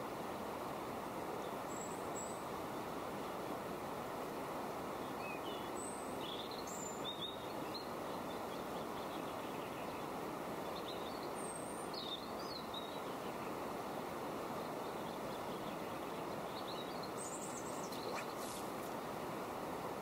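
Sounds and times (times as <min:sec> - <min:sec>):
small birds chirping: 0:05.0 - 0:13.8, 0:14.5 - 0:19.4
steady rushing noise: 0:17.3 - 0:20.0.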